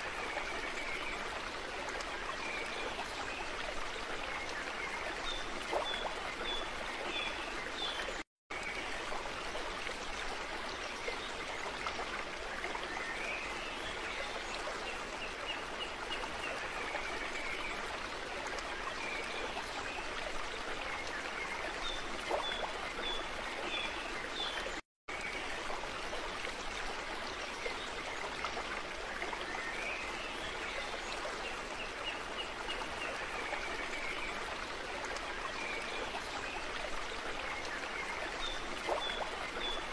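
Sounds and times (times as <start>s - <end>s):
flowing water: 0.0s - 39.9s.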